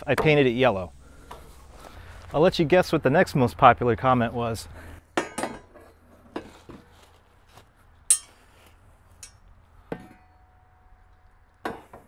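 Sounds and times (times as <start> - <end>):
metal clanks and clinks: 8.1 - 8.4
metal knock with ringing tone: 8.1 - 8.4.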